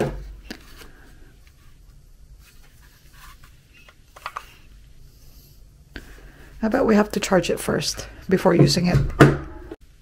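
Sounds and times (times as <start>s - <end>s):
plastic battery pack handling: 2.6s - 4.7s.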